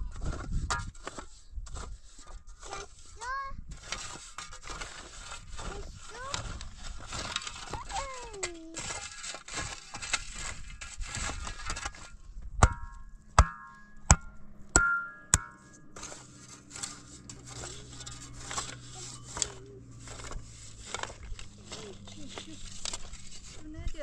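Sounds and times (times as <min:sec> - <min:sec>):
shovel scraping stony soil: 0:00.0 - 0:13.6, 0:15.3 - 0:24.0
shovel striking rock: 0:06.6 - 0:22.0.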